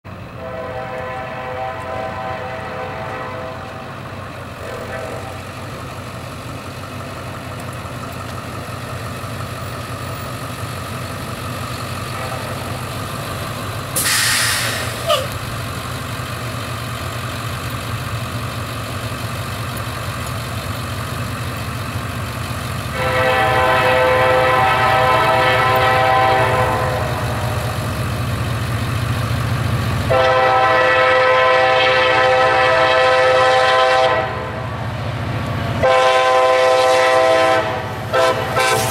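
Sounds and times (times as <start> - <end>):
locomotive engines rumbling: 0.0 - 38.9
locomotive air horn blasts: 0.3 - 4.0, 4.6 - 5.6, 22.9 - 27.8, 30.1 - 34.8, 35.8 - 38.9
brief hiss: 14.0 - 15.3, 38.7 - 38.9.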